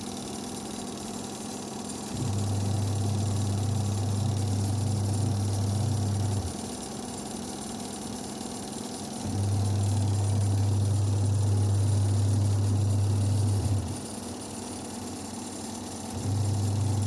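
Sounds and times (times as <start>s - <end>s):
washing machine motor running: 0.0s - 17.0s
low mains hum: 2.1s - 6.7s, 9.2s - 14.4s, 16.0s - 17.0s.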